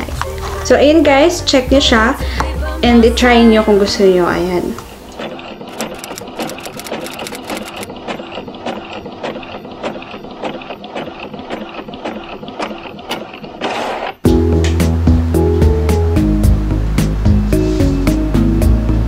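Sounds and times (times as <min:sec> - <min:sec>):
music: 0:00.0 - 0:05.0, 0:14.2 - 0:19.0
printer clicking and whirring: 0:05.1 - 0:13.5.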